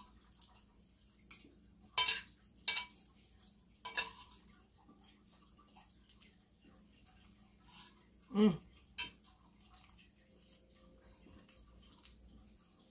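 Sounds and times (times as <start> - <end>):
cutlery clinking on a plate: 2.0 - 3.1, 3.8 - 4.4.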